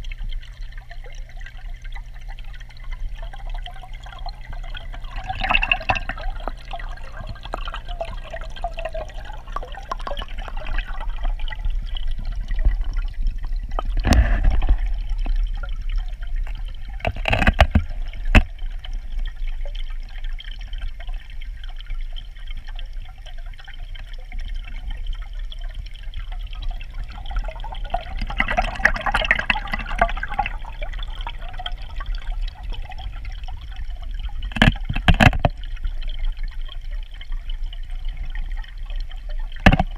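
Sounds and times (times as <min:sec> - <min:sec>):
water gurgling underwater: 0:00.0 - 0:39.9.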